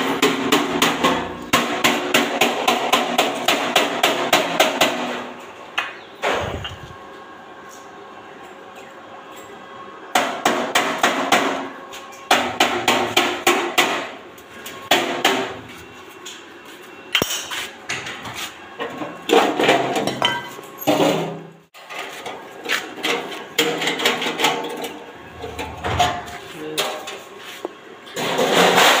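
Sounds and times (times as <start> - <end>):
hammer striking sheet steel: 0.2 - 5.3.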